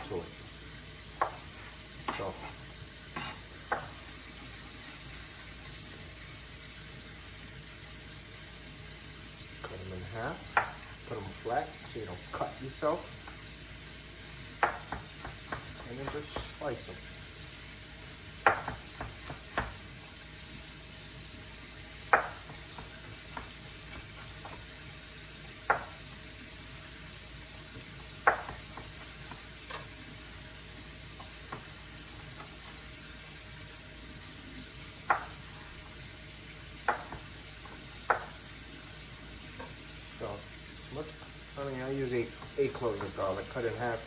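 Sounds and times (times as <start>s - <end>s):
knife knocking on cutting board: 14.6s - 16.6s, 18.4s - 19.8s, 22.1s - 24.6s, 25.6s - 26.0s, 28.2s - 29.8s, 36.8s - 38.4s.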